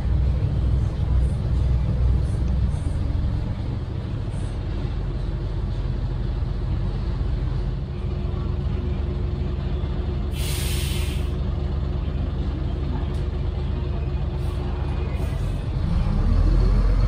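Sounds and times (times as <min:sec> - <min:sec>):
bus diesel engine running: 0:00.0 - 0:17.0
compressed air hiss: 0:10.3 - 0:11.3.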